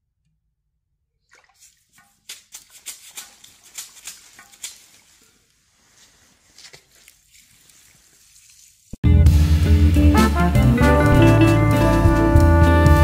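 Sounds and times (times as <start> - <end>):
water splashing from hose: 1.3 - 9.0.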